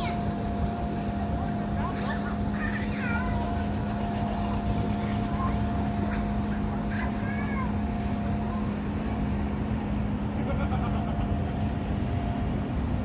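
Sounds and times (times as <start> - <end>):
constant hum: 0.0 - 13.0
engine drone: 0.0 - 13.0.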